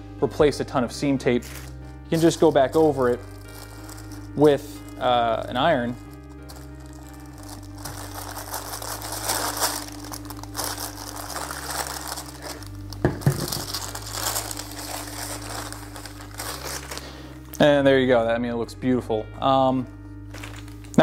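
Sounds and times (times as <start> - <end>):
paper peeled off: 1.4 - 17.2
wax paper crinkling and rustling: 1.4 - 17.4, 20.3 - 21.0.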